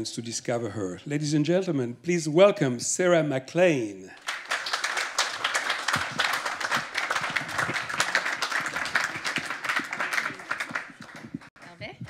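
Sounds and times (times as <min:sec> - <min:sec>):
audience applauding: 0:04.2 - 0:11.9.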